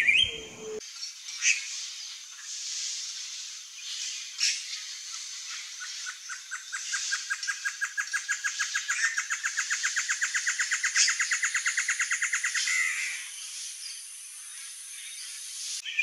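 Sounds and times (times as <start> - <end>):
bird hooting song with nasal snarl: 0.0 - 0.8.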